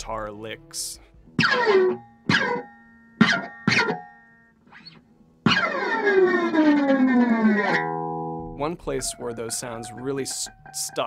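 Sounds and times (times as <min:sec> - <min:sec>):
guitar strings struck with screwdriver: 0:01.3 - 0:04.1.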